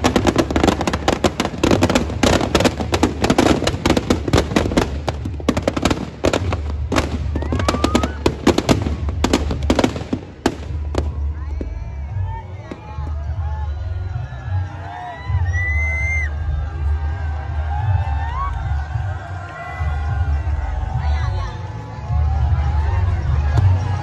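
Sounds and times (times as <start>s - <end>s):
firecrackers banging and crackling: 0.0s - 11.8s.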